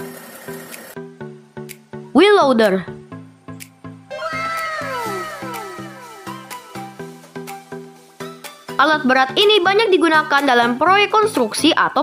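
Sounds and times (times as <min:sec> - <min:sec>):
downward gliding tones effect: 0:04.1 - 0:07.1.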